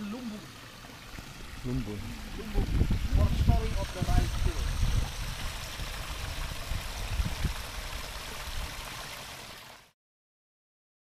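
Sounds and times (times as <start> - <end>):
water rushing over small drop: 0.1 - 9.9.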